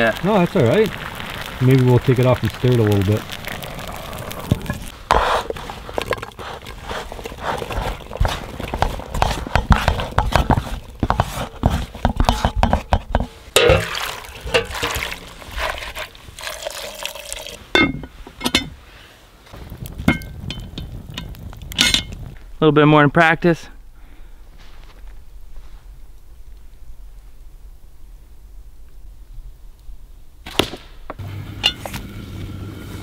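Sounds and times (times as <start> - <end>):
food stirred and scraped with stick: 3.4 - 17.0.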